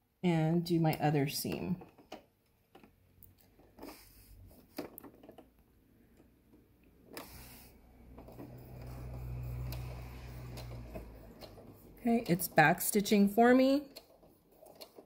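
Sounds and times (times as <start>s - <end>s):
electric sewing machine stitching: 7.0s - 15.0s.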